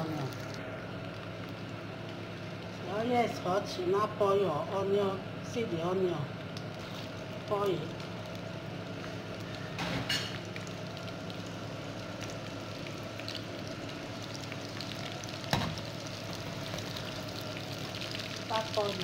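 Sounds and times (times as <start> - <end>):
onion sizzling in oil: 6.6 - 19.0.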